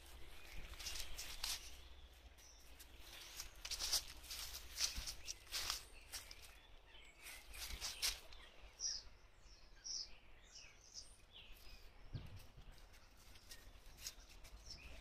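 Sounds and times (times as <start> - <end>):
dry leaves crackling underfoot: 0.0 - 9.0, 12.8 - 15.0.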